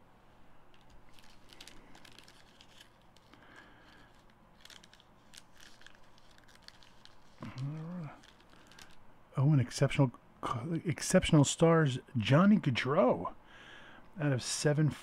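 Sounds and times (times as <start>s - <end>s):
cards rustling and clicking: 0.7s - 9.0s.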